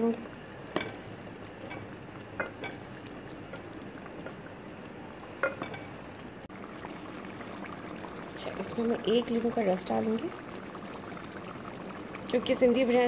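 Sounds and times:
curry simmering hiss: 0.0s - 13.0s.

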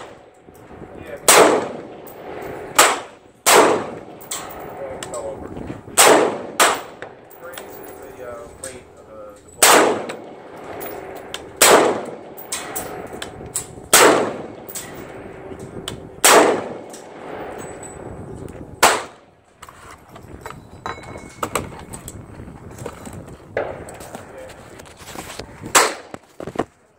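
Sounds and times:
rifle shots echoing: 1.2s - 5.0s, 5.9s - 7.4s, 9.6s - 17.8s, 18.8s - 19.3s, 25.7s - 26.1s.

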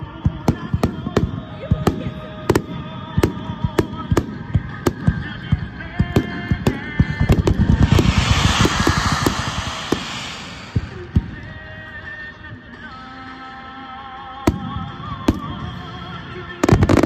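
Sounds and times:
fireworks bursting: 6.0s - 11.8s
dense hiss of firework barrage: 6.2s - 12.1s.

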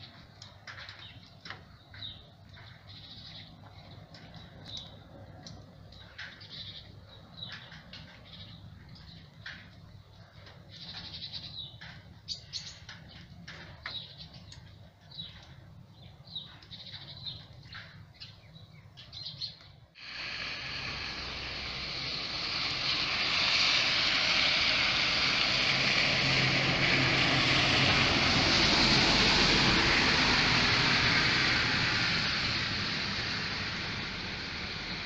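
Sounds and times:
small birds chirping: 0.0s - 19.9s
steady rushing hiss: 20.0s - 35.0s.

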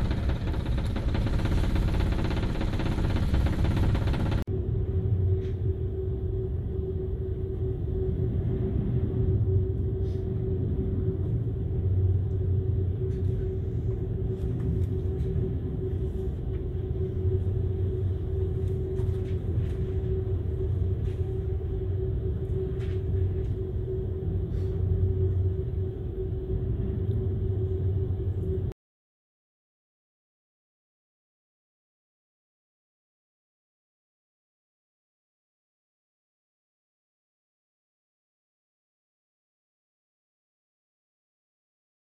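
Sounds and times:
low rumble with hum: 0.0s - 28.8s.

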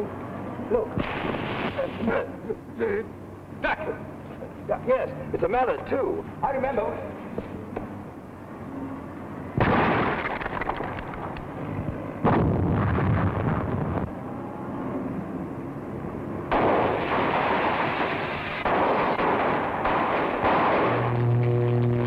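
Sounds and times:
loud explosions: 1.0s - 1.9s, 9.6s - 10.4s, 12.2s - 14.0s, 16.5s - 22.0s
rapid crackling bangs: 1.0s - 1.9s, 9.6s - 11.3s, 16.5s - 22.0s.

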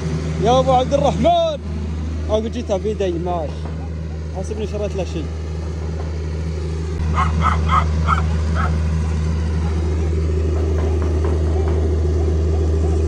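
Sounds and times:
steady low hum: 0.0s - 13.0s
dog yipping: 7.1s - 8.8s.

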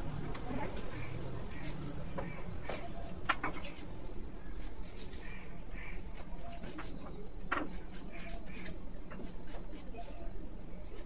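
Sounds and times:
knife scraping banana skin: 2.6s - 11.0s.

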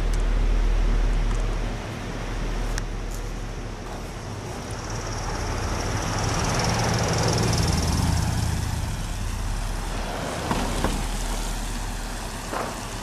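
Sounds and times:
truck driving past: 0.0s - 13.0s
second vehicle passing: 3.9s - 13.0s.

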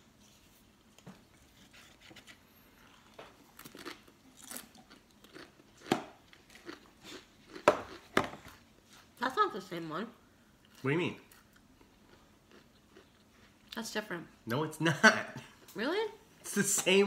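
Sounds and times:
potato chip crunching: 3.4s - 8.0s.

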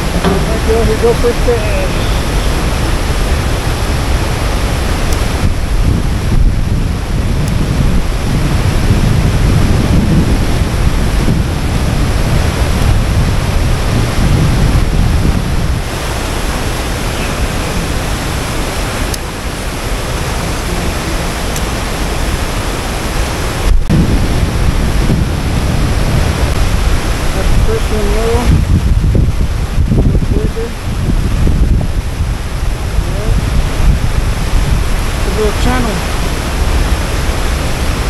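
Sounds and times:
water rushing from spillway: 0.0s - 38.0s
wind rumbling on microphone: 0.0s - 38.0s.

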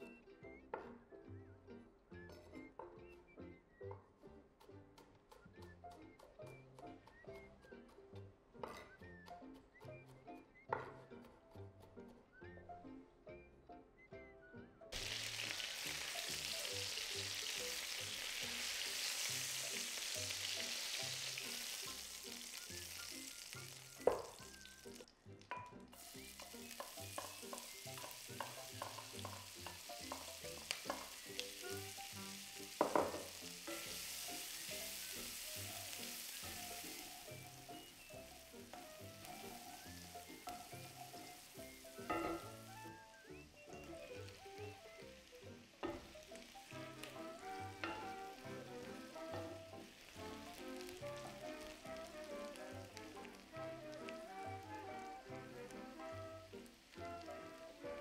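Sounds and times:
soft background music: 0.0s - 58.0s
onion sizzling in pan: 5.4s - 8.2s, 14.9s - 58.0s
wooden spatula knocking pan: 17.4s - 24.8s, 25.5s - 42.9s, 43.8s - 55.4s.

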